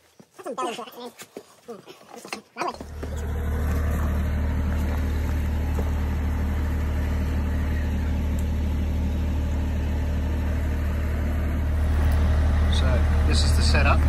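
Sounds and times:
diesel engine running steadily: 0:02.8 - 0:14.0.

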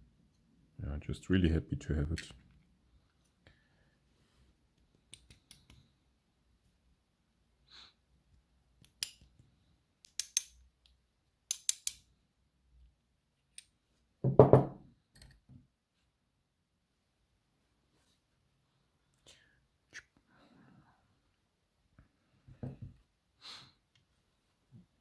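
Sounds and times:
small metal parts clicking: 0:10.0 - 0:10.6, 0:11.5 - 0:12.1.

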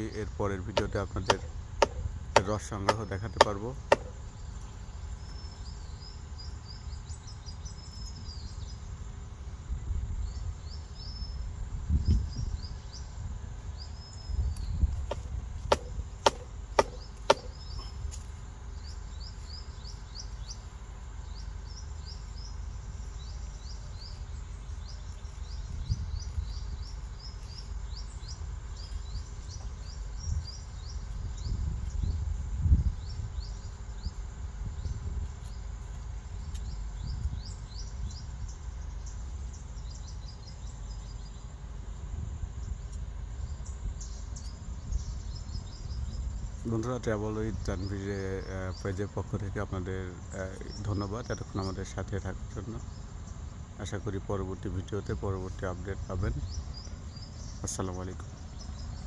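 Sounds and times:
low rumbles: 0:00.0 - 0:59.0
small birds chirping: 0:00.0 - 0:59.0
sharp knocks of blade on tree: 0:00.7 - 0:04.2, 0:14.9 - 0:18.3.

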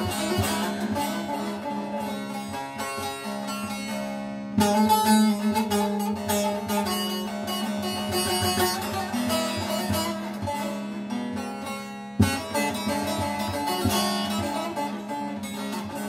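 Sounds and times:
long-necked lute melody: 0:00.0 - 0:16.0
strummed accent: 0:00.0 - 0:16.0.

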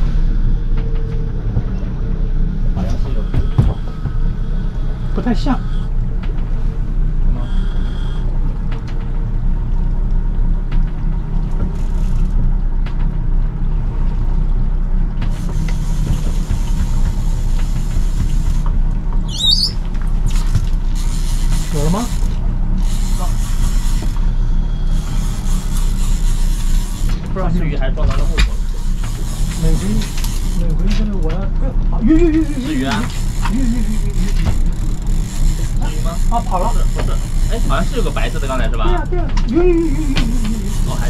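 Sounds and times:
boat engine humming: 0:00.0 - 0:41.0
short high squeal: 0:07.4 - 0:08.3, 0:19.3 - 0:19.8.

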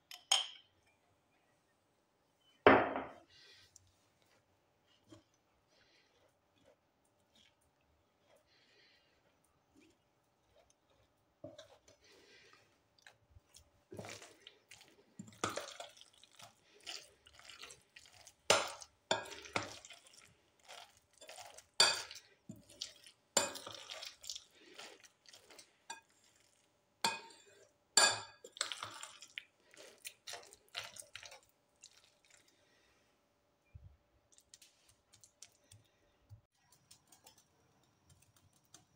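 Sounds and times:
spoon stirring and scraping in bowl: 0:03.0 - 0:32.6.

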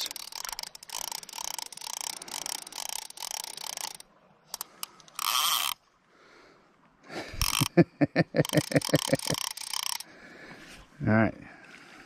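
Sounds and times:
fishing reel ratchet clicking: 0:00.0 - 0:05.8, 0:07.4 - 0:07.7, 0:08.4 - 0:10.1.

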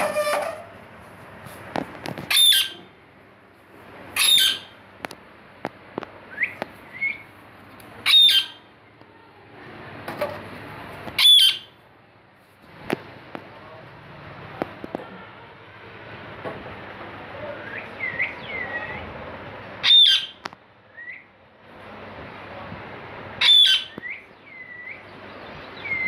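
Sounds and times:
parakeet squawking: 0:02.3 - 0:02.9, 0:04.2 - 0:04.8, 0:08.0 - 0:08.6, 0:11.2 - 0:11.8, 0:19.8 - 0:20.4, 0:23.4 - 0:24.9.

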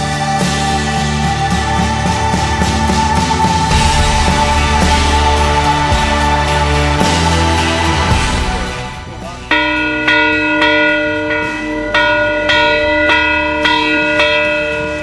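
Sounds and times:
background music: 0:00.0 - 0:15.0
large bell ringing: 0:00.7 - 0:15.0.

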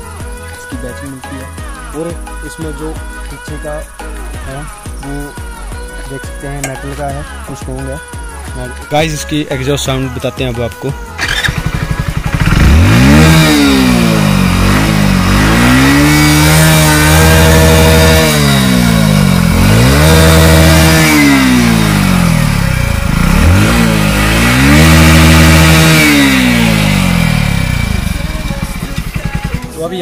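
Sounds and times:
motorcycle engine revving: 0:11.2 - 0:30.0.

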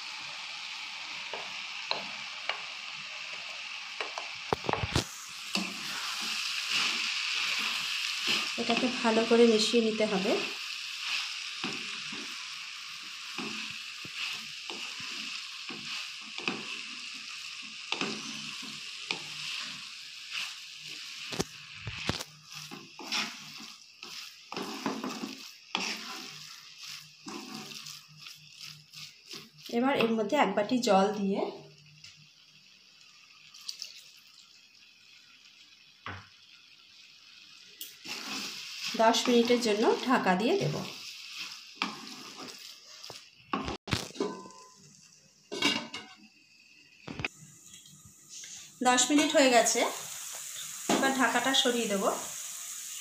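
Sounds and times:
food sizzling: 0:00.0 - 0:53.0
spatula scraping frying pan: 0:04.1 - 0:30.1, 0:37.9 - 0:44.8.

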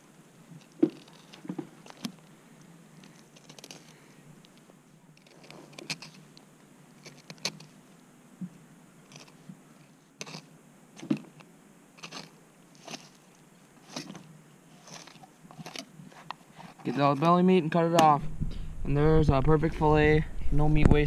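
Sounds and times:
knife crunching through fish ribs: 0:12.0 - 0:14.2.

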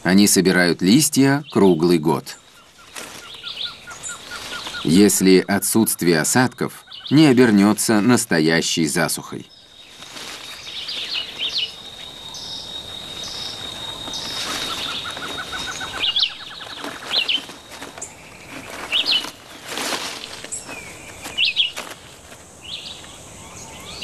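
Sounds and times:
birds chirping: 0:00.0 - 0:24.0
outdoor background noise: 0:00.0 - 0:24.0
rising bird trill: 0:02.4 - 0:08.1, 0:09.4 - 0:19.4.

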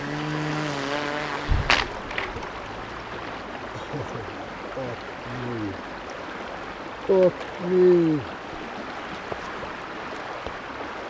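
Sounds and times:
electric motor and propeller whine: 0:00.0 - 0:03.3
stream water flowing: 0:00.0 - 0:11.0.

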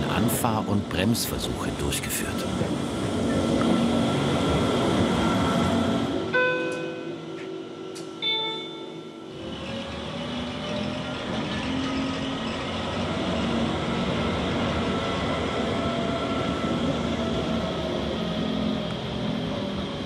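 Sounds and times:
railcar wheels and gearing rumble: 0:00.0 - 0:20.0.

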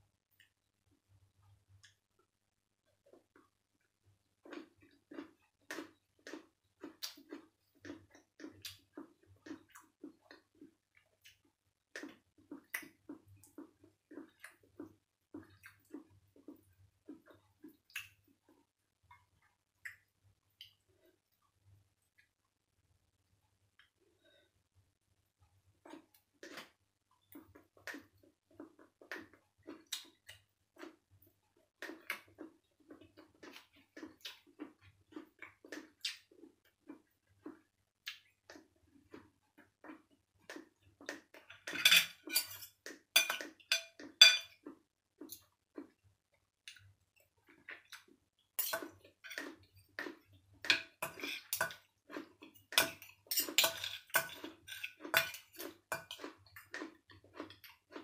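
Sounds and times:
chewing: 0:04.4 - 0:21.2, 0:25.8 - 0:41.7, 0:42.5 - 0:46.0, 0:46.6 - 0:58.0
cutlery clinking on plates: 0:41.5 - 0:44.6, 0:50.6 - 0:51.8, 0:52.7 - 0:56.3.

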